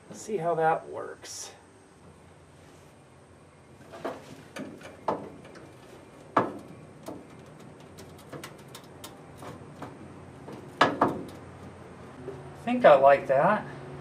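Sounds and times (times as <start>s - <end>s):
pedal knocking on steel bracket: 4.0s - 11.8s.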